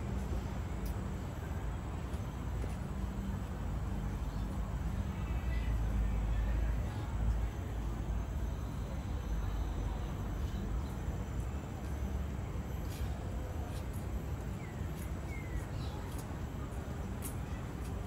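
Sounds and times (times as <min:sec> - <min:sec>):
distant city traffic rumble: 0:00.0 - 0:18.0.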